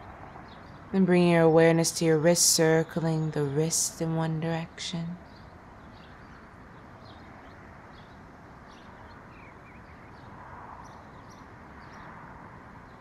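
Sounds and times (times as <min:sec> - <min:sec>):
soft outdoor hiss: 0:00.0 - 0:13.0
small birds chirping: 0:04.6 - 0:13.0.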